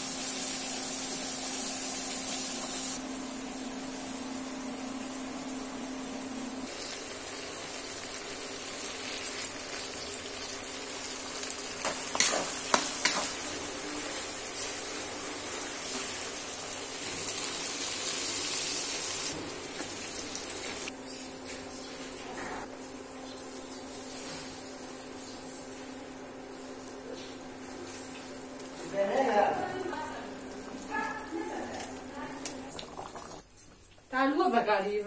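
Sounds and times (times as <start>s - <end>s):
food sizzling in hot oil: 0.0s - 3.0s, 6.7s - 20.9s.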